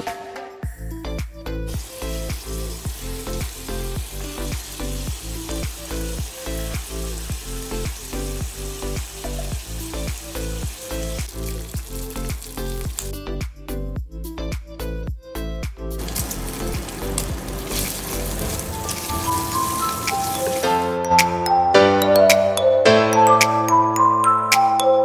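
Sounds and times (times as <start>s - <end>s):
background music with steady beat: 0.0s - 25.0s
bacon sizzling in a frying pan: 1.7s - 13.2s, 16.0s - 20.9s.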